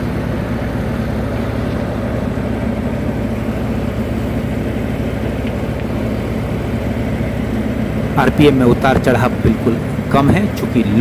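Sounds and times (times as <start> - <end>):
diesel tractor engine running: 0.0 - 11.0
thresher machinery running: 0.0 - 11.0.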